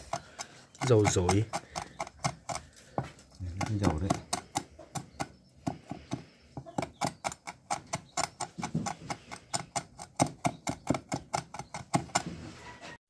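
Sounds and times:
cleaver chopping on wooden board: 0.0 - 12.2.

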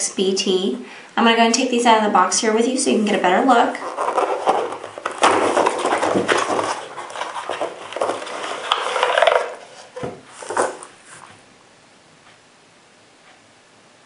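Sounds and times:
cardboard and plastic rustling: 3.6 - 11.4.

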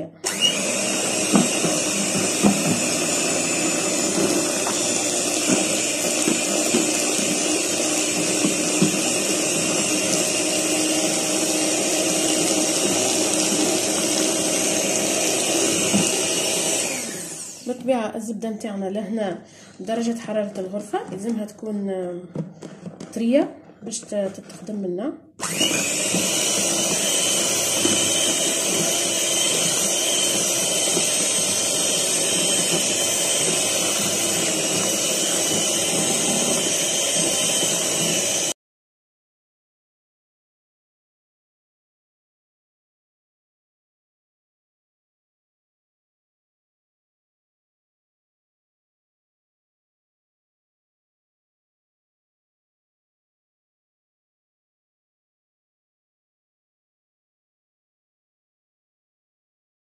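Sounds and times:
electric hand mixer running: 0.2 - 17.7, 25.4 - 38.6.

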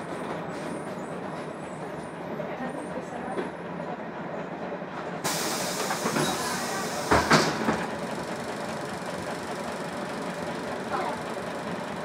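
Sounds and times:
air hiss of bus doors: 5.2 - 7.7
bus door clunk: 5.2 - 7.9.

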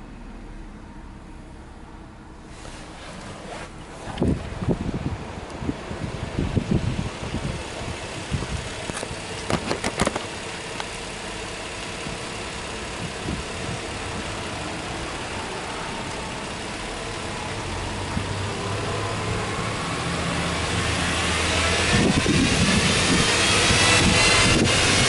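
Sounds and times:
car engine idling and revving: 0.0 - 25.0
sharp clicks: 8.9 - 11.0.

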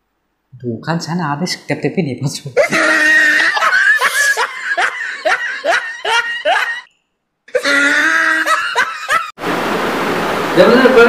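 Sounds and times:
man laughing in short bursts: 2.6 - 6.8, 7.5 - 9.3.

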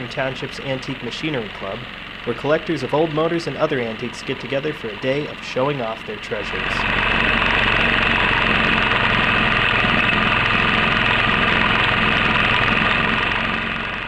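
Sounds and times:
drag saw engine running: 0.0 - 14.0
saw blade cutting log: 1.0 - 13.9.

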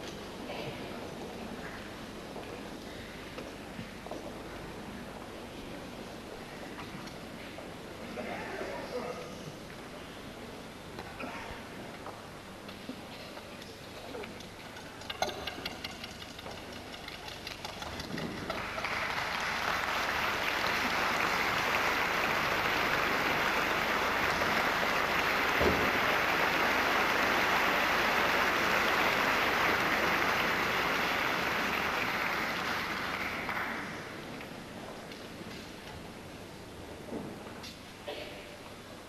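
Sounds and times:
audience applauding: 17.2 - 34.5.

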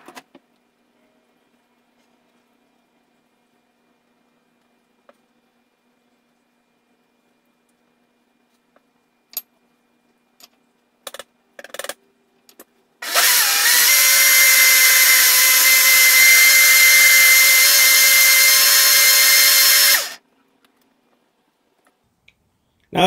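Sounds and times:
blender motor whining: 13.0 - 20.2.

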